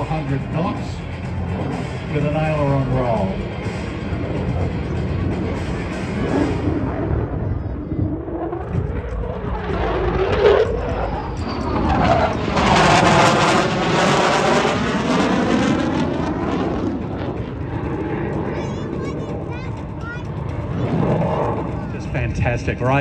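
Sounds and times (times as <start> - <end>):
falling whine: 0.0 - 23.0
jet passing low: 0.0 - 23.0.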